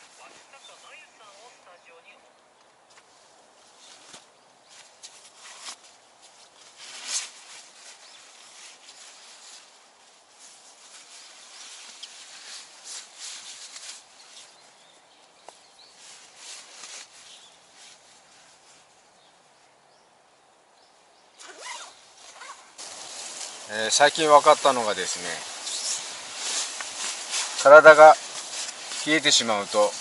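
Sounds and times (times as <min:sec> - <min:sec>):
fabric and gear rustling: 0:21.4 - 0:30.0.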